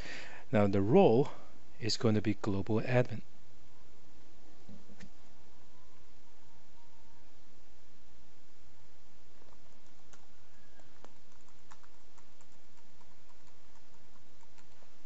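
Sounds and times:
steady background hiss: 0.0s - 15.0s
keyboard typing: 9.5s - 15.0s.

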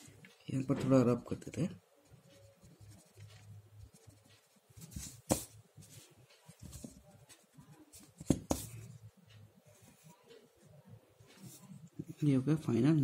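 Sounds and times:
pencil writing on paper: 2.0s - 6.0s, 6.6s - 9.0s
pencil taps: 3.0s - 5.6s, 6.5s - 9.0s.

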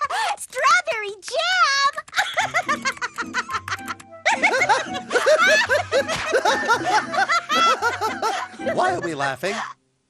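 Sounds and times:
cartoon characters giggling: 2.0s - 9.3s
light background music: 2.3s - 9.8s.

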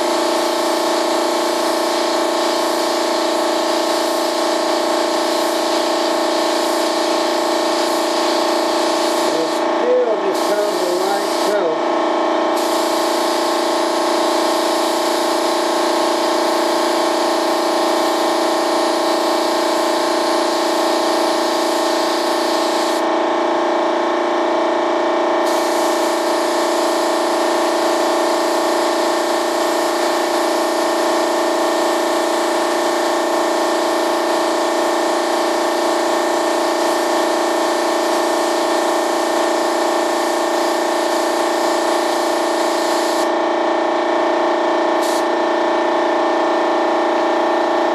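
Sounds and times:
spray gun hissing: 0.0s - 11.7s, 12.6s - 23.0s, 25.4s - 31.2s, 36.6s - 43.3s, 45.0s - 45.3s
air supply motor hum: 0.0s - 47.9s.

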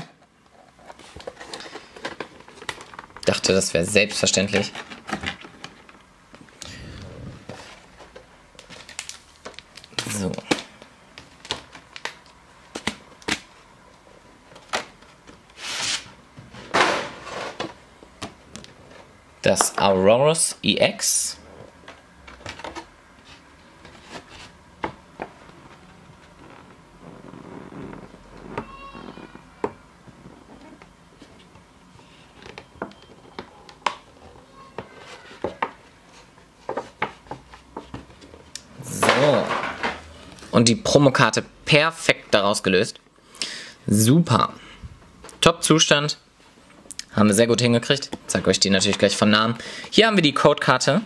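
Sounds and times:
plastic packaging clicking and crackling: 0.7s - 3.4s, 8.0s - 13.5s.

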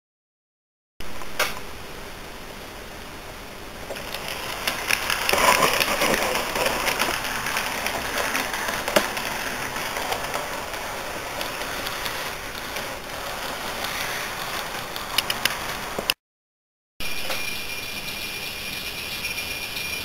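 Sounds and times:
model train rolling hiss and rattle: 3.8s - 16.1s, 17.2s - 20.0s.

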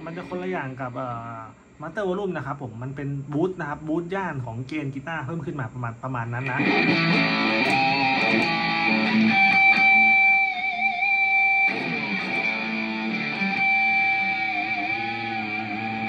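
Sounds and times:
electric guitar lead with vibrato: 0.0s - 0.4s, 6.4s - 16.0s.

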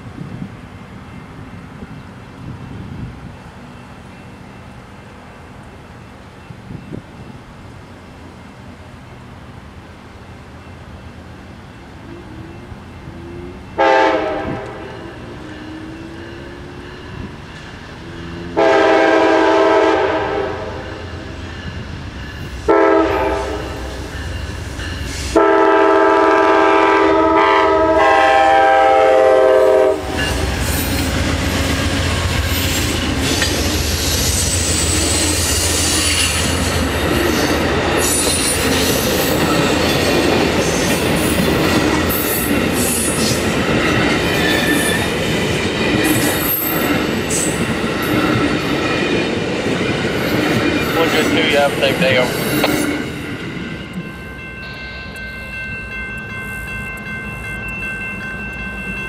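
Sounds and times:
diesel locomotives rumbling past: 0.0s - 59.0s
locomotive air horn blasts: 13.1s - 15.0s, 18.6s - 21.0s, 22.7s - 23.9s, 25.3s - 30.2s.

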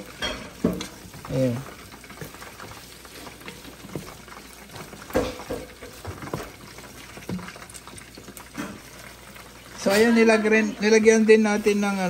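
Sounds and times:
wooden spoon scraping a pot: 0.0s - 9.2s
meat sizzling in a pot: 0.0s - 12.0s
spoon knocking against pot: 5.0s - 6.6s.

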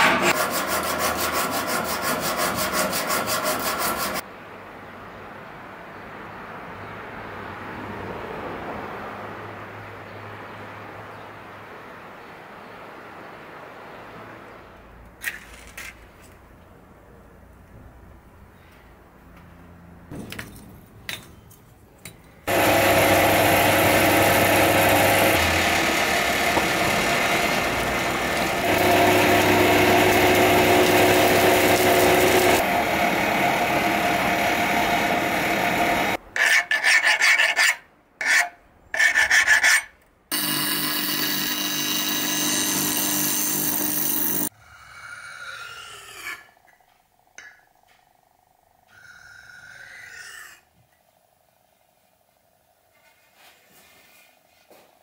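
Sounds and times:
tool rasping on metal: 0.0s - 4.2s, 36.4s - 44.5s
blade scraping on whetstone: 36.4s - 39.9s.

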